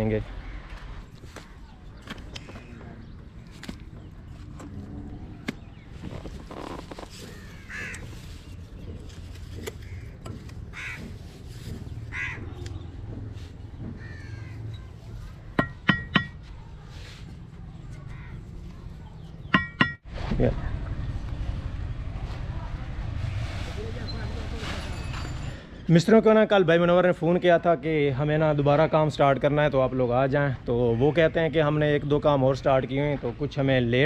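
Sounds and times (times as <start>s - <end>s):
crows cawing: 7.2s - 8.2s, 9.8s - 11.3s, 12.1s - 12.6s, 13.8s - 14.9s, 18.0s - 18.5s
trowel knocking on brick: 15.6s - 16.4s, 19.6s - 20.0s.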